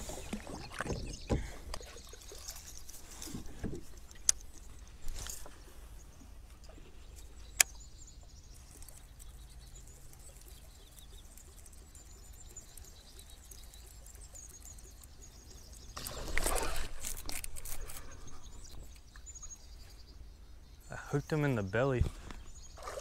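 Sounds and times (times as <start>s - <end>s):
fish splashing on a lure: 16.0s - 18.3s.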